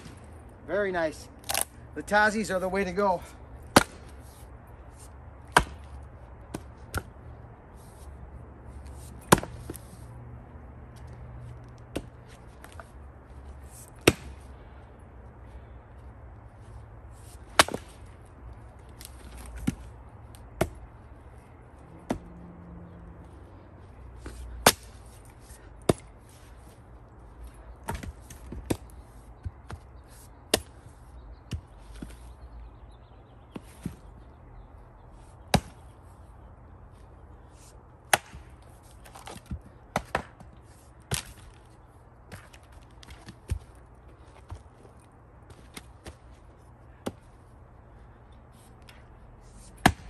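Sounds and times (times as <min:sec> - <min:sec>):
axe chopping firewood: 0:00.0 - 0:00.3, 0:01.4 - 0:01.7, 0:03.6 - 0:04.3, 0:05.4 - 0:07.1, 0:09.2 - 0:09.8, 0:11.8 - 0:12.8, 0:13.9 - 0:14.4, 0:17.3 - 0:18.1, 0:19.0 - 0:20.8, 0:22.0 - 0:22.4, 0:24.2 - 0:26.1, 0:27.8 - 0:29.9, 0:30.5 - 0:30.9, 0:35.5 - 0:35.8, 0:38.1 - 0:41.6, 0:47.0 - 0:47.3, 0:49.7 - 0:50.0.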